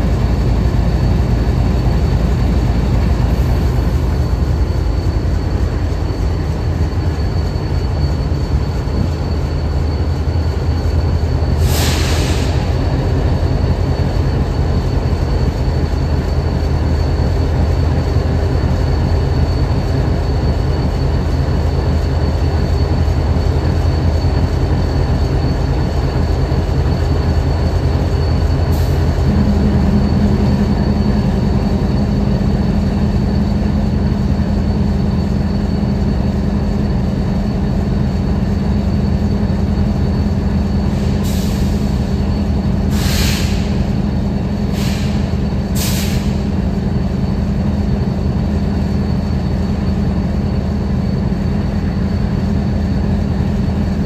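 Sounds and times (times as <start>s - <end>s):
diesel locomotive idling: 0.0s - 54.0s
steady hum: 29.0s - 42.9s.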